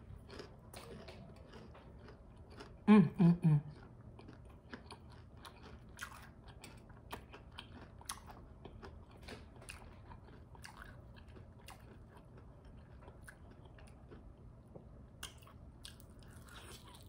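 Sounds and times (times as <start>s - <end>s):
chewing crispy food: 0.0s - 17.0s
person humming: 2.9s - 3.7s.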